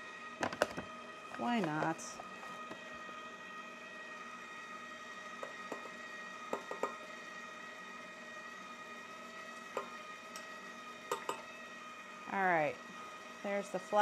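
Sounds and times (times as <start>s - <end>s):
stand mixer motor whine: 0.0s - 14.0s
metal cup tapping steel bowl: 11.1s - 11.4s.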